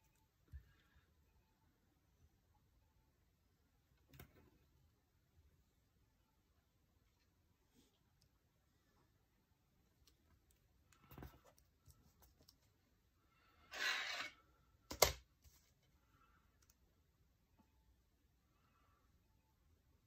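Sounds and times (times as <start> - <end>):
ruler scraping: 13.7 - 14.4.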